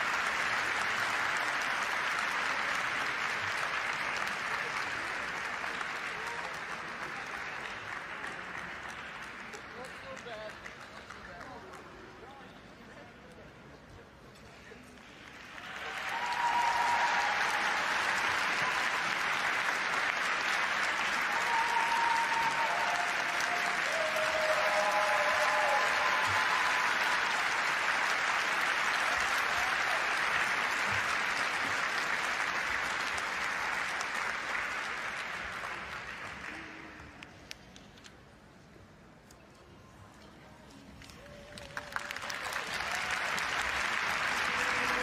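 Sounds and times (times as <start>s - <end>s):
crowd applauding: 0.0s - 12.4s, 15.0s - 37.5s, 41.0s - 45.0s.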